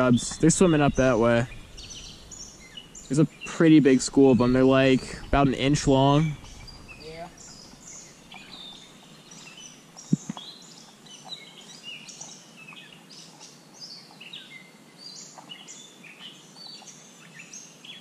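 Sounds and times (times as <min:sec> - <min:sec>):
songbirds singing: 0:00.0 - 0:18.0
sharp knock: 0:10.1 - 0:10.4.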